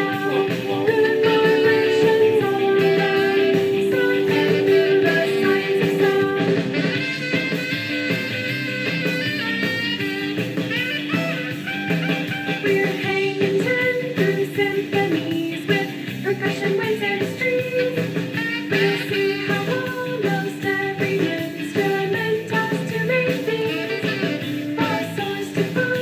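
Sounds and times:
surf rock song with singing: 0.0 - 7.6, 11.5 - 26.0.

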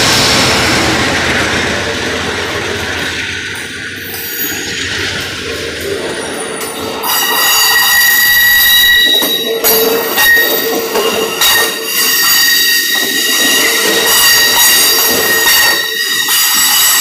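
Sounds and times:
train cars rolling past: 0.0 - 17.0
train wheels squealing: 4.0 - 5.3, 6.2 - 17.0.

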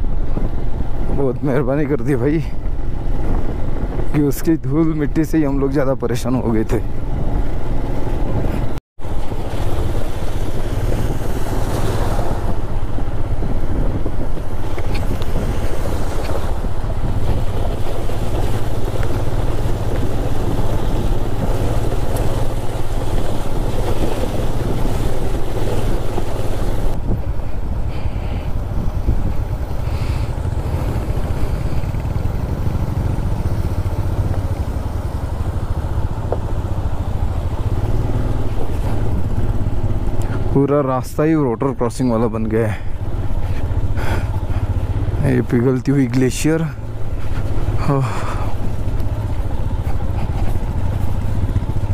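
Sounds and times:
wind rushing over microphone: 0.0 - 51.9
motorcycle engine running: 6.8 - 40.5, 42.7 - 51.9.

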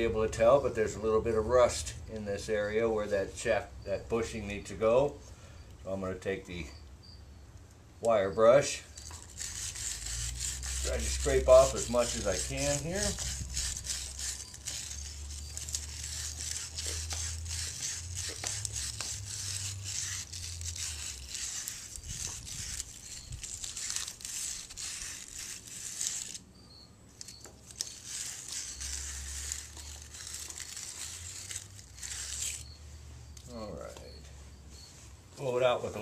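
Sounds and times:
wire brush scrubbing metal: 8.7 - 26.4, 27.2 - 32.8.

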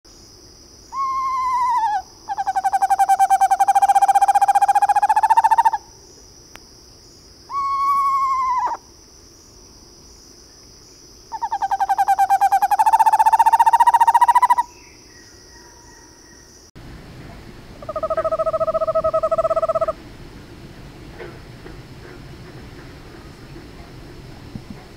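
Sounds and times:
owl descending whinny: 0.9 - 5.8, 7.5 - 8.8, 11.4 - 14.6
owl purring trill: 0.9 - 5.8, 7.5 - 8.8, 11.3 - 14.7, 17.8 - 20.0.

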